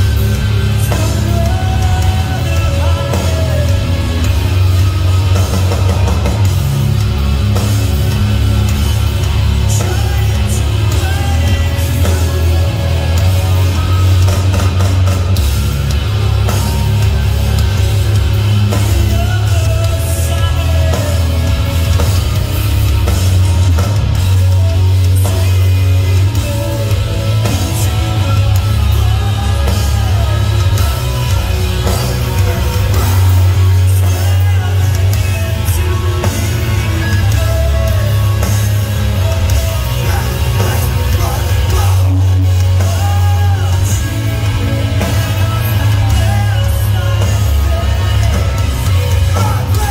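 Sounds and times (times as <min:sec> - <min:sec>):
bass guitar: 0:00.0 - 0:49.9
distorted electric guitars: 0:00.0 - 0:49.9
drum kit: 0:00.0 - 0:49.9
rock vocals: 0:00.0 - 0:49.9.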